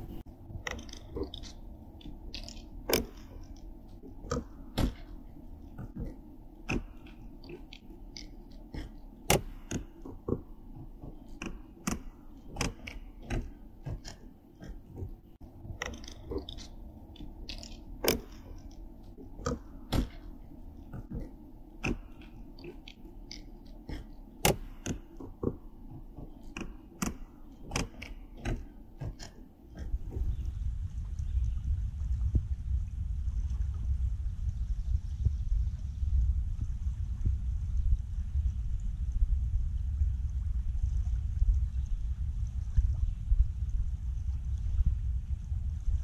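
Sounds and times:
sharp clicks and crackling: 0.1 - 30.4.

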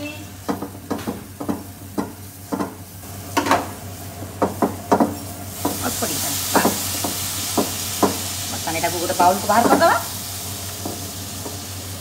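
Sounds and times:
frying sizzle: 0.0 - 12.0.

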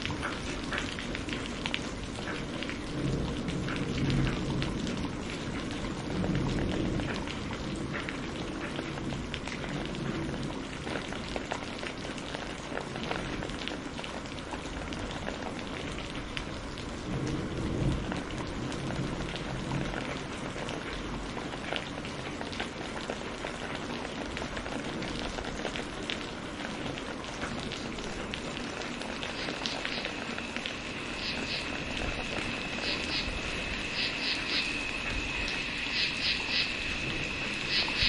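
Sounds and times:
rain on foliage: 0.0 - 38.0
low rolling thunder: 1.1 - 11.4, 16.9 - 21.4, 26.8 - 38.0
animal calling with chirps: 29.3 - 30.2, 31.1 - 31.8, 32.7 - 34.9, 35.8 - 36.8, 37.6 - 38.0.

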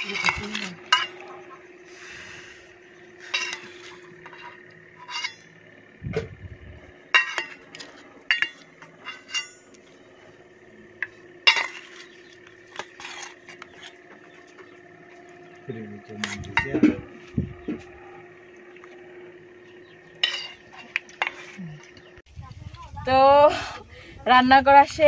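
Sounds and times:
faint steady hum: 0.0 - 25.0
spoon clinking on steel bowl: 20.2 - 21.4.

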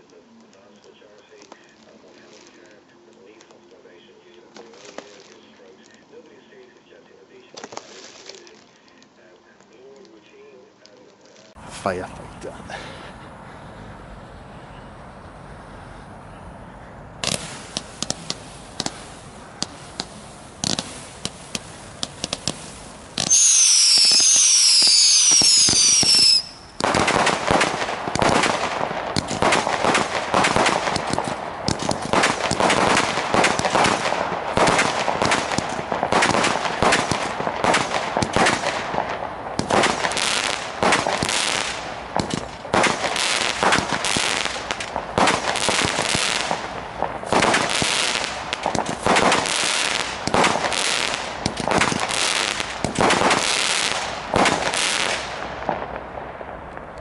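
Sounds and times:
firework crackling: 0.0 - 12.6, 17.2 - 57.0
shrill falling firework whistles: 23.2 - 26.8.

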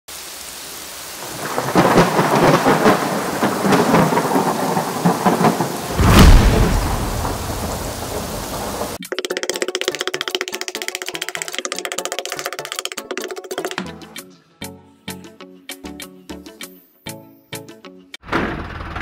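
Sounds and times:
rain falling: 0.1 - 9.0
thunderclap rumbling: 1.2 - 9.0.

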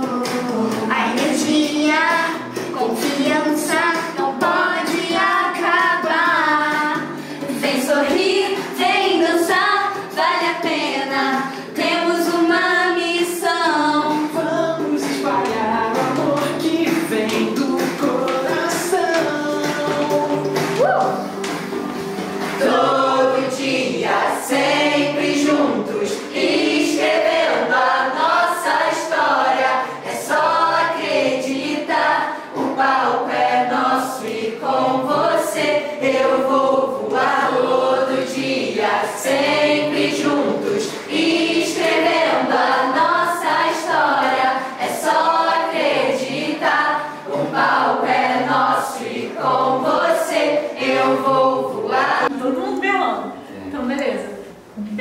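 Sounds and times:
group singing together: 0.0 - 52.4
sharp rhythmic taps: 15.0 - 22.7.

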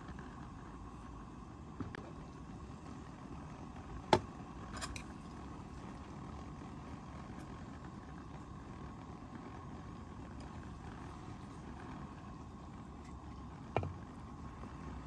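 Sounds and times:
pot simmering hiss: 0.0 - 15.0.

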